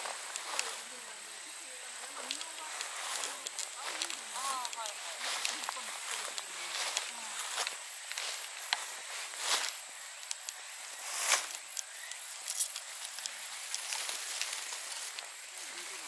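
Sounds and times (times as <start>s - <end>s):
high insect chirring: 0.0s - 16.0s
leaves rustling and brushing: 0.0s - 16.0s
small clicks: 2.2s - 7.1s, 10.2s - 10.6s.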